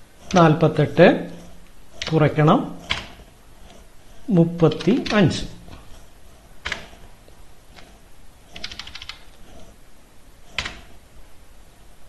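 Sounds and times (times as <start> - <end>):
keyboard typing clicks: 2.8 - 3.2, 4.7 - 5.8, 6.6 - 7.0, 8.6 - 9.3, 10.6 - 10.9.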